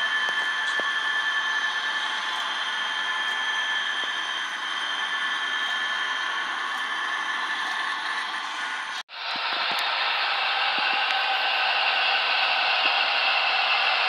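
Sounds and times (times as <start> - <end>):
model train motor whine: 0.0 - 14.0.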